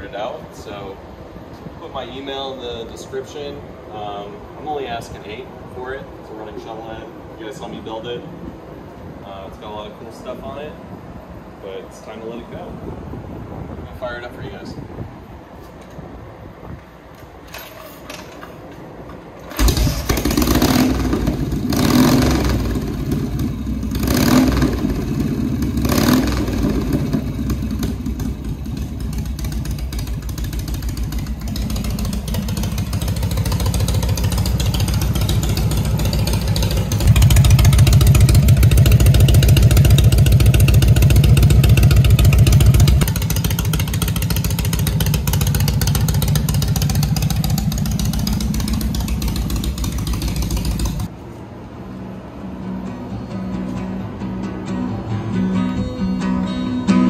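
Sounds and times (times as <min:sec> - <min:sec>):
motorcycle engine starting and revving: 0:19.4 - 0:51.1.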